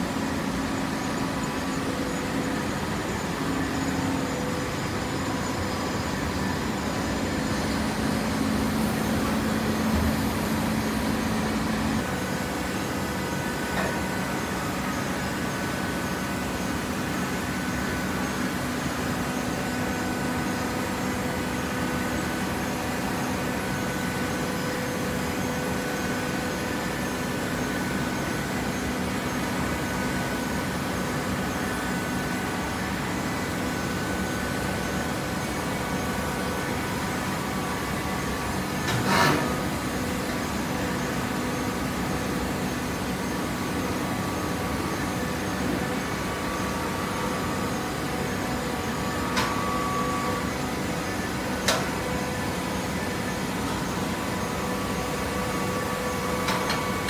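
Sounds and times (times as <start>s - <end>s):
baler machine hum: 0.0s - 18.6s.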